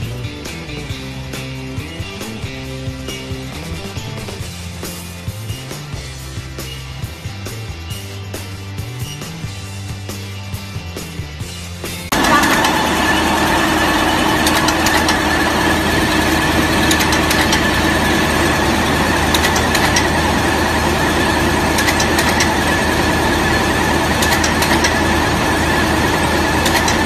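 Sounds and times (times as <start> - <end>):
machine whine and hum: 12.1 - 27.0
rapid machine clicking: 12.1 - 27.0.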